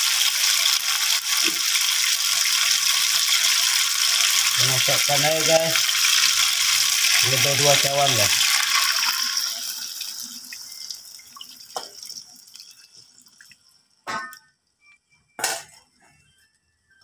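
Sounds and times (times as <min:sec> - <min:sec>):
water hissing in hot wok: 0:00.0 - 0:11.2.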